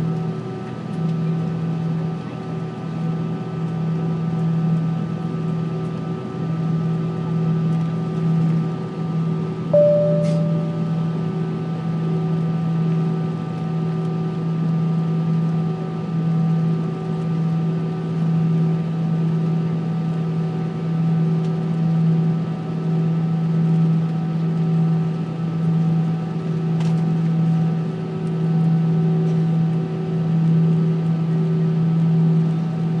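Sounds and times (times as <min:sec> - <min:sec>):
jet engine drone: 0:09.8 - 0:11.5.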